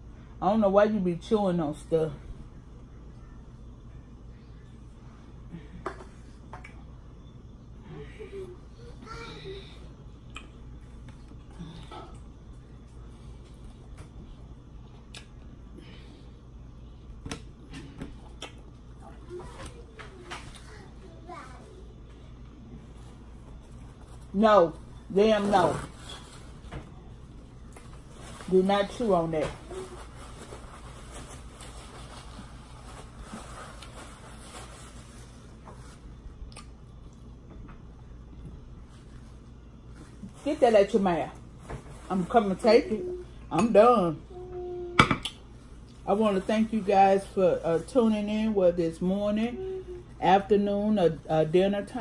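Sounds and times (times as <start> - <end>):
steady low hum: 0.0 - 52.0
paper towel rustling: 27.9 - 36.2, 38.8 - 43.2.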